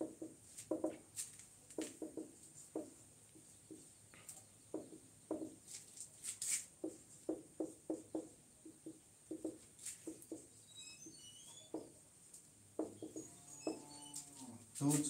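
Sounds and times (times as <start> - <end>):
marker squeaking on whiteboard: 9.3 - 12.0, 12.8 - 14.5.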